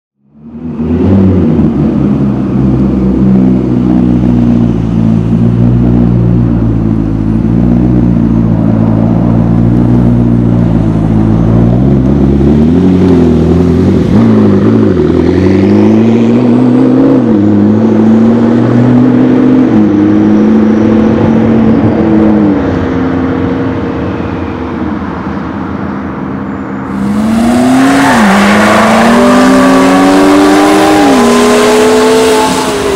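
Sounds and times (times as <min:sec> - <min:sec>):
sports car engine revving: 0:26.9 - 0:32.9.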